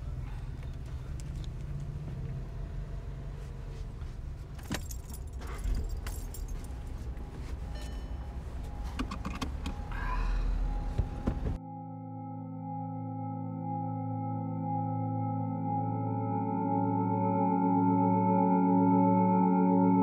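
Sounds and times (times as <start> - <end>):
car keys jangling: 4.4 - 8.2.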